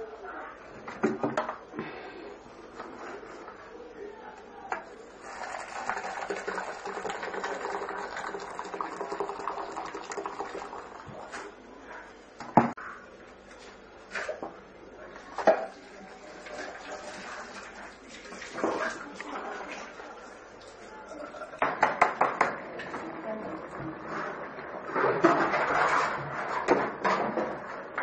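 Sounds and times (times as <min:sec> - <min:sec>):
water pouring into metal pot: 0:05.2 - 0:11.2.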